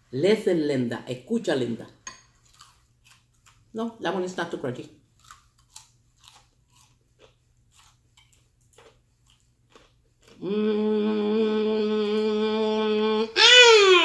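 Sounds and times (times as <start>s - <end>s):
crunchy chewing: 2.3s - 3.8s, 5.1s - 10.4s
person humming mmm: 10.4s - 14.0s.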